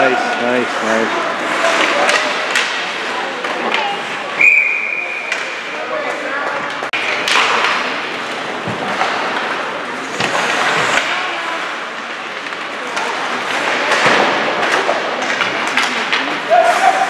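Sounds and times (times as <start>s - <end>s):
skate blades scraping ice: 0.3s - 4.2s.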